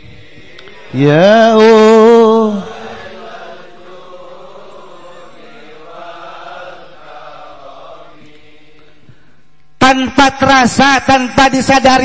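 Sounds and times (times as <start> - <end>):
soft chanting voices: 0.0 - 9.9.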